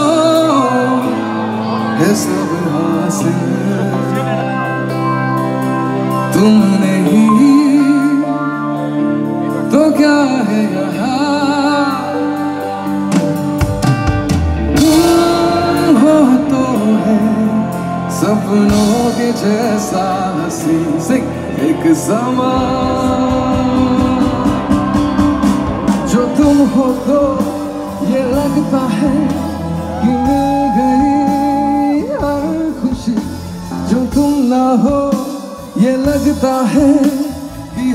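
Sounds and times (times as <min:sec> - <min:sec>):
man singing into a microphone: 0:00.0 - 0:13.4, 0:14.7 - 0:37.9
live band playing: 0:00.0 - 0:37.9.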